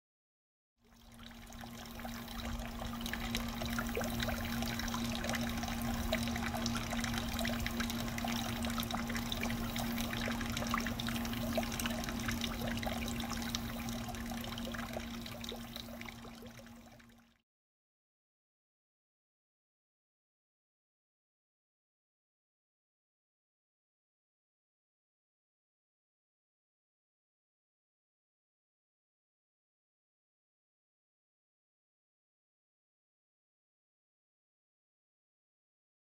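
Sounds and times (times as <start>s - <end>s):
water trickling into pond: 0.8s - 17.4s
low hum: 1.0s - 17.1s.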